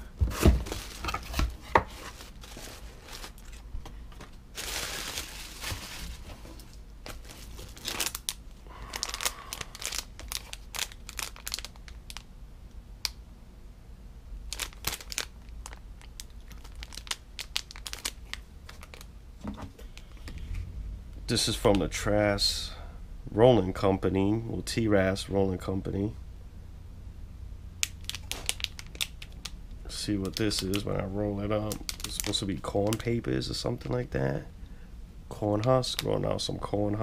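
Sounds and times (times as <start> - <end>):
plastic packaging crinkling: 0.3 - 12.3, 14.5 - 19.1, 27.8 - 33.2.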